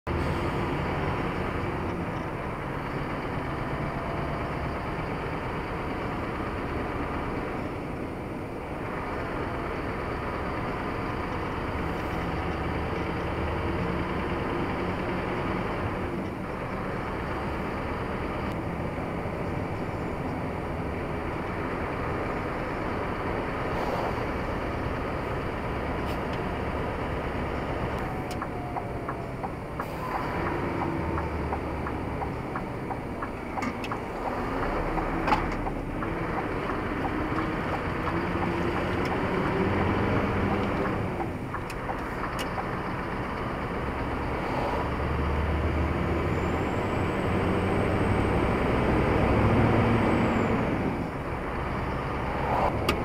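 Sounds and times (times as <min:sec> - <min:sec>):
car engine: 0:00.0 - 0:53.0
tyre road noise: 0:00.0 - 0:53.0.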